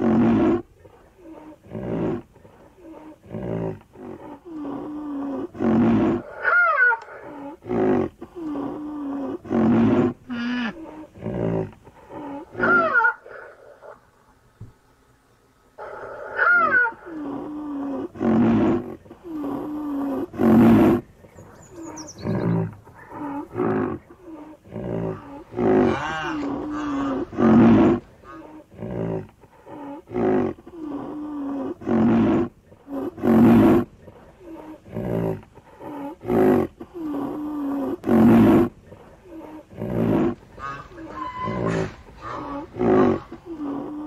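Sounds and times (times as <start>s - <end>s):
rhinoceros calling: 0.0s - 14.0s, 15.8s - 44.0s.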